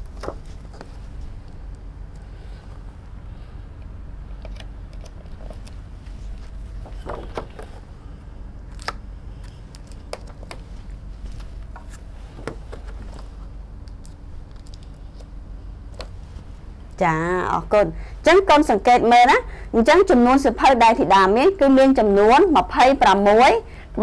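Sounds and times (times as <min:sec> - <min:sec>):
steady low hum: 0:00.0 - 0:24.0
cards tapping and rustling: 0:08.7 - 0:10.7.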